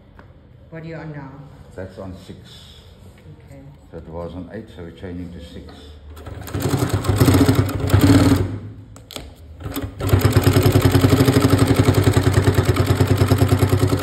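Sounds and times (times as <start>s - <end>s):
sewing machine stitching leather: 6.2s - 8.6s, 9.6s - 14.0s.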